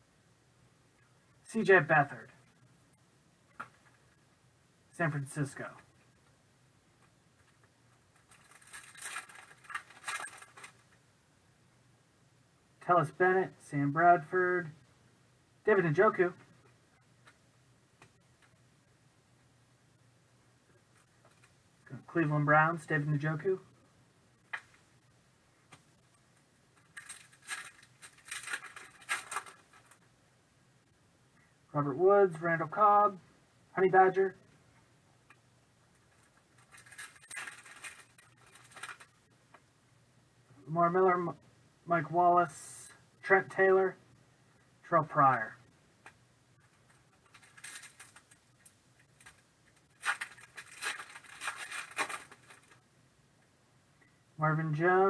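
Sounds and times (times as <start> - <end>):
foil wrapper crinkling: 8.2 - 10.8, 26.9 - 30.0, 36.2 - 39.1, 46.9 - 48.4, 49.1 - 52.8.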